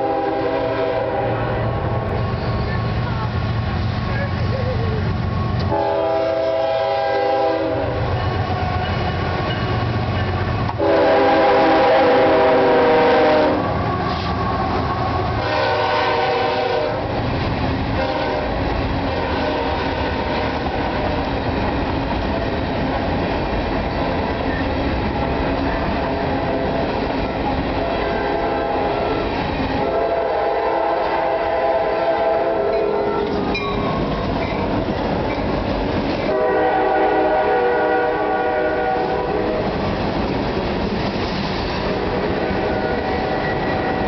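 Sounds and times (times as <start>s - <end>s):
locomotive horn blasts: 0.0s - 1.9s, 5.6s - 8.6s, 10.7s - 14.2s, 15.4s - 17.1s, 18.0s - 21.0s, 27.8s - 29.2s, 29.8s - 33.3s, 36.3s - 39.7s
freight cars rumbling and clattering: 32.7s - 36.3s, 39.5s - 44.0s.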